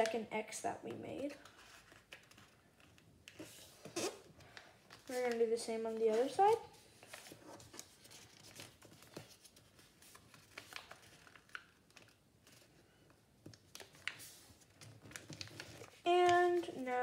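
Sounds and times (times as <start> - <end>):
paper rustling and crinkling: 1.3 - 17.0.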